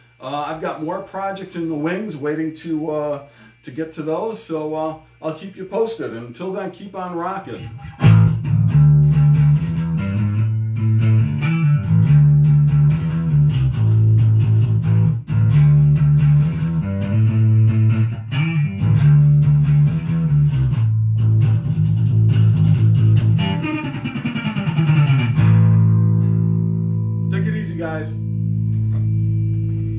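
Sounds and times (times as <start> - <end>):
electric bass riff through amplifier: 7.2 - 29.9.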